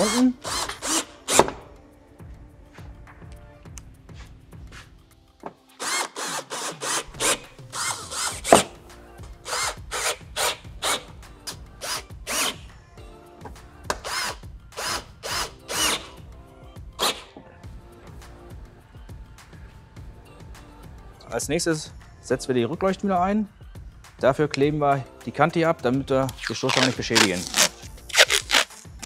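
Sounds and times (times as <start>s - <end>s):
cordless drill bursts: 0.0s - 1.4s, 5.8s - 8.7s, 9.5s - 11.0s, 11.8s - 12.6s, 14.0s - 16.2s.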